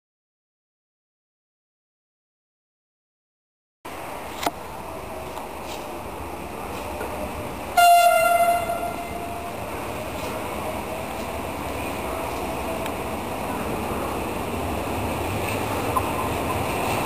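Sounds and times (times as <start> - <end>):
steady background noise: 3.9 - 17.0
train horn blast: 7.7 - 9.6.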